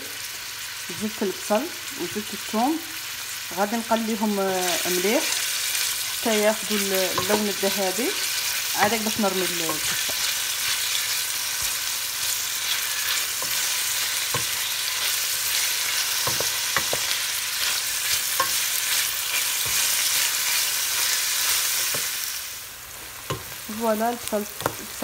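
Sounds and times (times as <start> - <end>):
onions sizzling in oil: 0.0 - 25.0.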